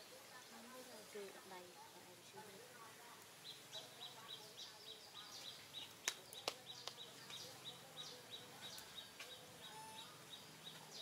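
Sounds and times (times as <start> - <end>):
bird chirping: 3.3 - 11.0.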